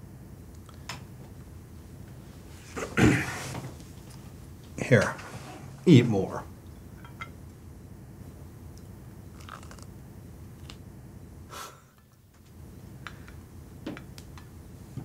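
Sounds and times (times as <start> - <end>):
low room hum: 0.0 - 15.0
person sniffing: 11.5 - 11.9.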